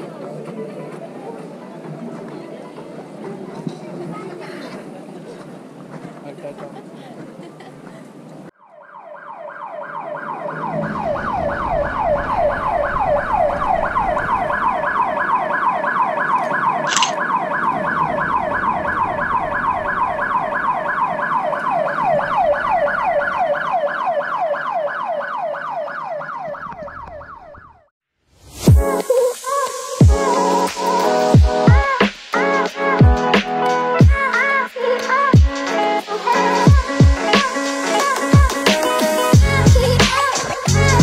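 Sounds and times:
siren yelping: 8.6 - 27.9.

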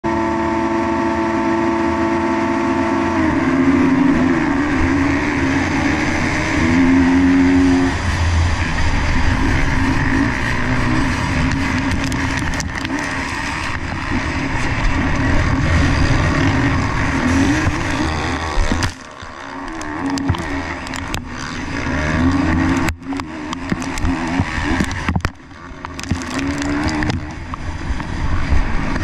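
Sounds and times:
motocross bikes revving and accelerating: 0.1 - 29.0
dirt hitting helmet camera: 9.2 - 28.2.

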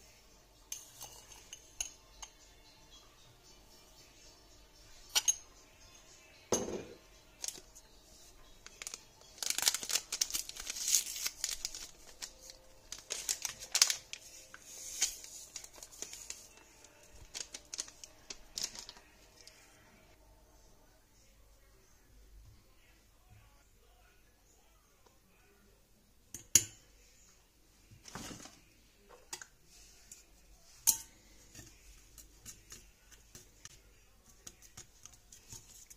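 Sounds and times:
paper sachet tearing and crinkling: 8.6 - 19.2.

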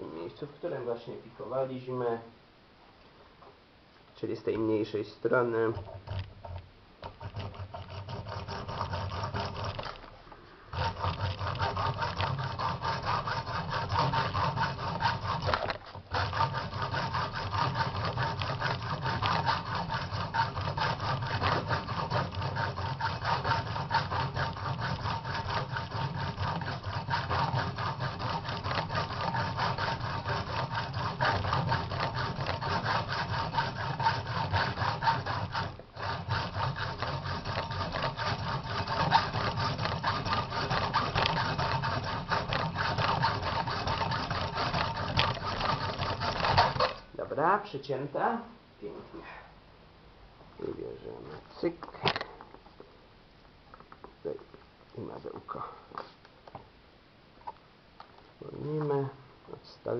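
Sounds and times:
hacksaw cutting metal: 5.6 - 10.0, 10.7 - 47.0.

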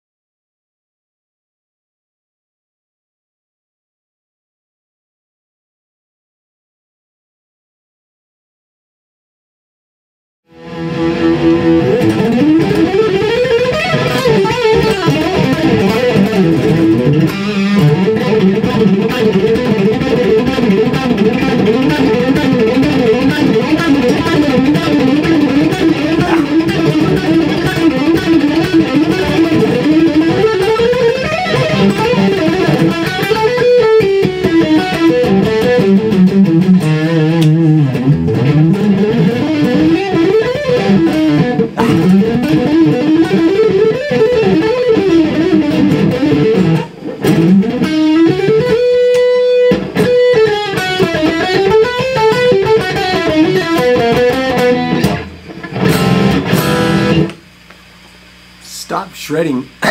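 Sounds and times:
electric guitar played fingerstyle: 10.5 - 58.5
recording hiss: 58.6 - 59.9.

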